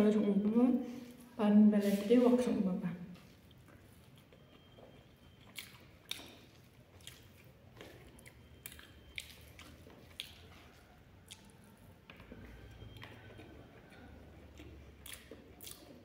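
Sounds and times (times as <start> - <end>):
chewing: 3.2 - 16.0
soft mouth smacks: 11.3 - 11.6.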